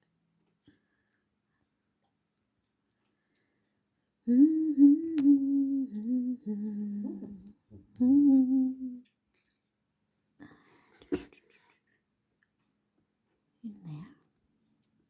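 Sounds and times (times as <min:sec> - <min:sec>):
woman humming: 0:04.2 - 0:09.1.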